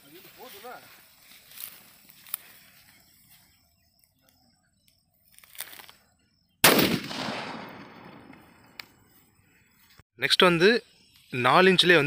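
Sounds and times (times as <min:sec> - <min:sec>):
firecracker bang: 0:06.6 - 0:08.6.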